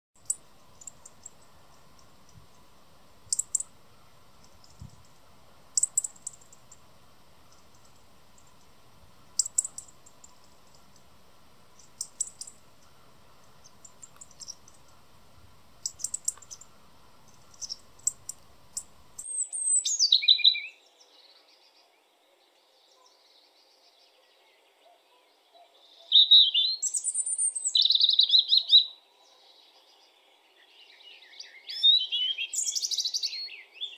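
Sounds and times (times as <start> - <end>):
robin tick calls: 0.2 - 15.1, 15.8 - 20.5
robin singing high song phrases: 5.8 - 6.9, 13.4 - 15.1, 15.7 - 20.9, 25.9 - 29.0, 30.6 - 33.9.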